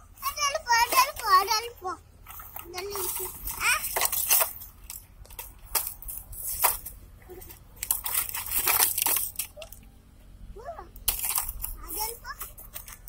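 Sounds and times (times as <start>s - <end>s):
rubbing over dry leaves: 2.2s - 9.8s
plastic trays crackling and clicking: 2.3s - 6.9s, 7.5s - 9.8s, 11.0s - 11.8s.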